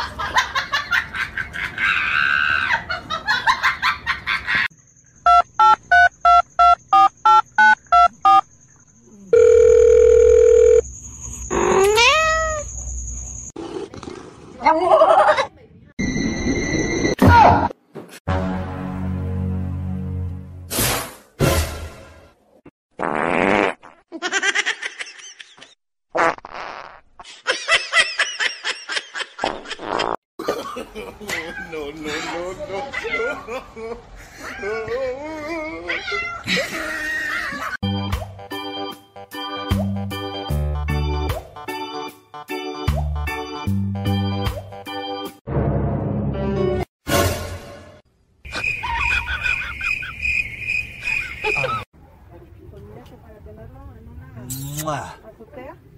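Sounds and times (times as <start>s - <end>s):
fart noises: 23.0s - 24.1s, 26.1s - 27.2s, 29.4s - 30.2s
person laughing: 33.1s - 37.8s, 48.5s - 50.2s, 51.4s - 51.9s.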